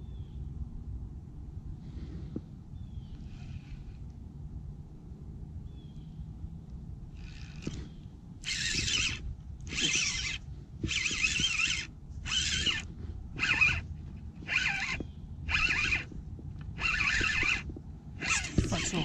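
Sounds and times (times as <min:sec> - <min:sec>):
wind rumbling on microphone: 0:00.0 - 0:19.0
fishing reel whirring: 0:03.2 - 0:04.0, 0:07.2 - 0:19.0.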